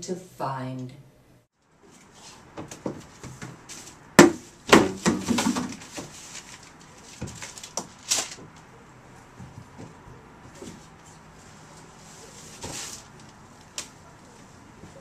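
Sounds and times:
bin lid banging: 0:04.2 - 0:05.8
clattering and rustling in bin: 0:04.6 - 0:08.6, 0:12.1 - 0:13.4.

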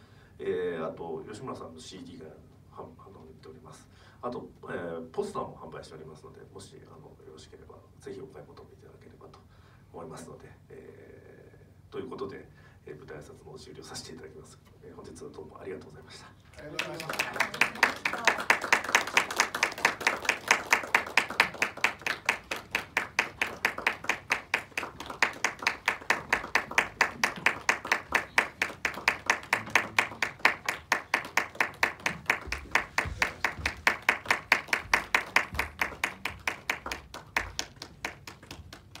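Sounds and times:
audience applauding: 0:16.6 - 0:39.0.

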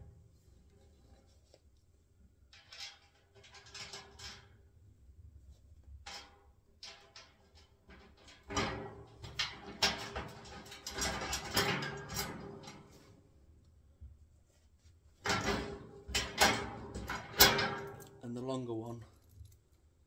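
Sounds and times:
metal bolts rattling on wheelbarrow: 0:06.1 - 0:13.0, 0:15.2 - 0:18.2.

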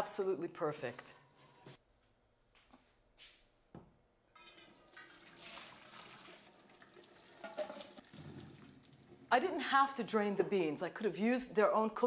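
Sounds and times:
water sloshing in a pot: 0:04.4 - 0:09.4.

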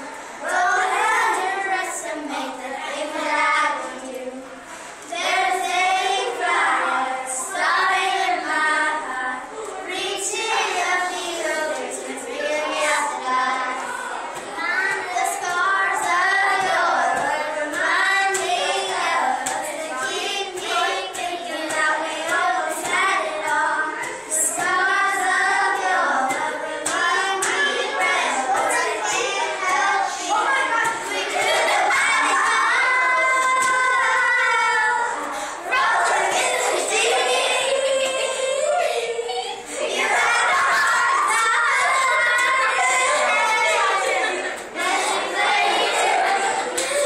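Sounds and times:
girls singing together: 0:00.0 - 0:47.0.

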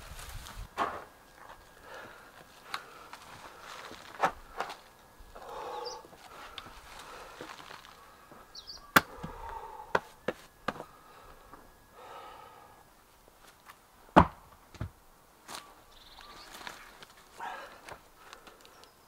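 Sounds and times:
heavy thump: 0:14.2 - 0:15.0.

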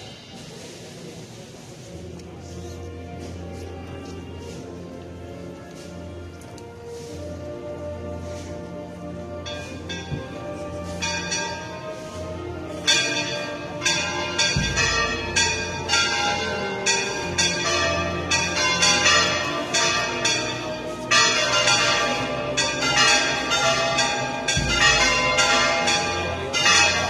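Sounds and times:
church bells ringing: 0:08.3 - 0:27.0.

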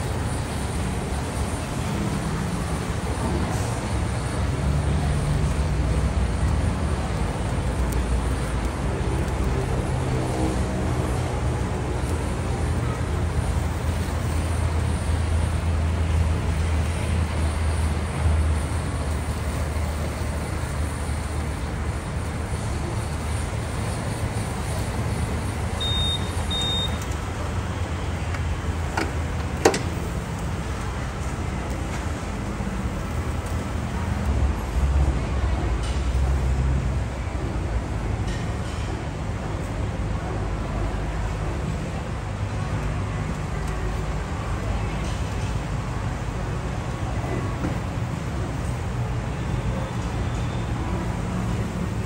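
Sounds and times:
blowtorch flame roaring: 0:00.0 - 0:38.2
short high beeps: 0:25.8 - 0:27.0.

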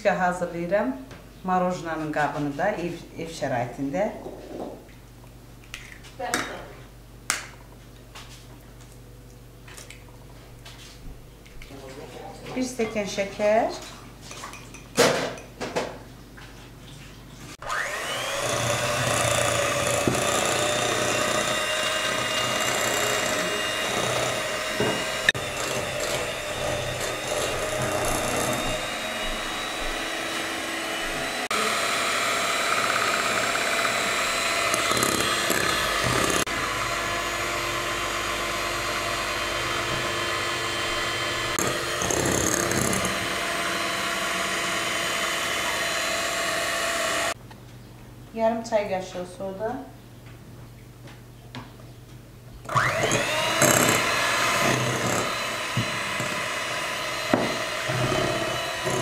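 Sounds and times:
electric hand mixer whipping: 0:17.6 - 0:47.4, 0:52.7 - 0:59.0.

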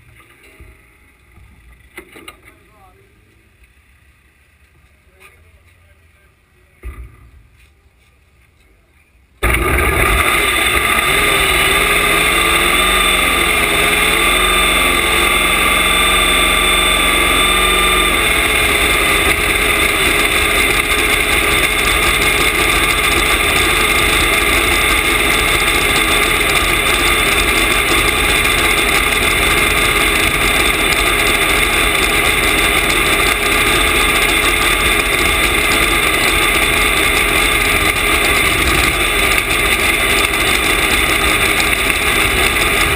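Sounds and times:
dragster engine idling loudly: 0:09.4 - 0:42.9.

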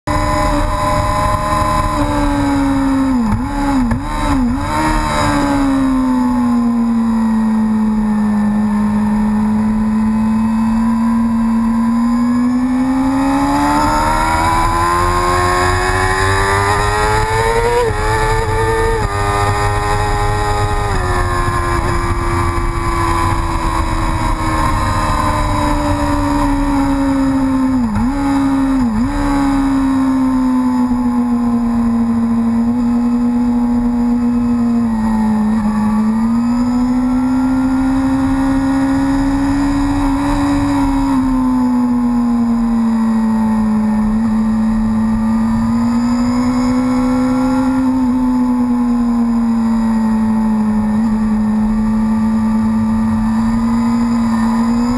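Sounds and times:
racing motorcycle engine: 0:00.0 - 0:54.9
wind rush on microphone: 0:13.4 - 0:29.8.

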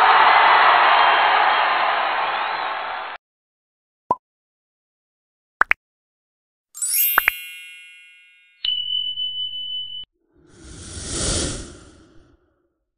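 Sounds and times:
sparkling chime: 0:06.8 - 0:10.0
steady bell-like tone: 0:06.8 - 0:10.0
whoosh: 0:10.4 - 0:12.6.

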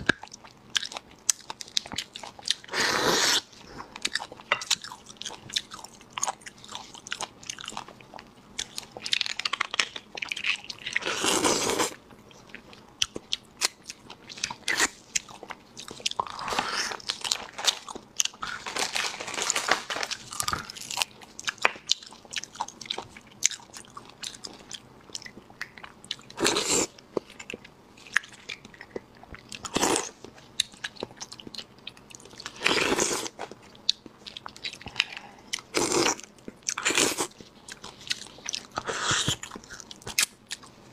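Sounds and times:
wet chewing and lip-smacking: 0:33.5 - 0:40.8.

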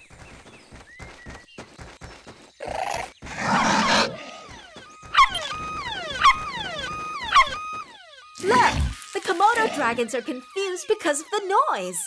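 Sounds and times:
bouncy cartoon music: 0:09.3 - 0:12.0.

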